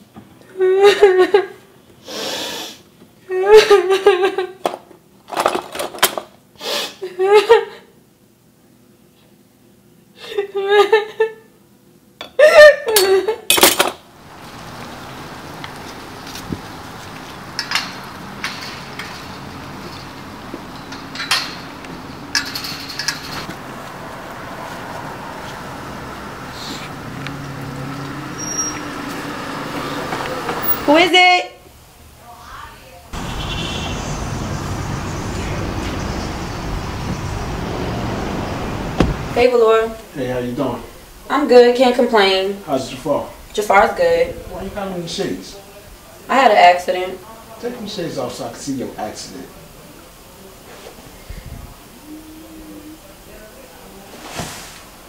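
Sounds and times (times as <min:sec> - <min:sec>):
road traffic rumble: 0:14.0 - 0:54.1
street ambience: 0:14.0 - 0:55.0
wind hiss: 0:14.2 - 0:31.0, 0:33.2 - 0:41.6, 0:51.1 - 0:53.0.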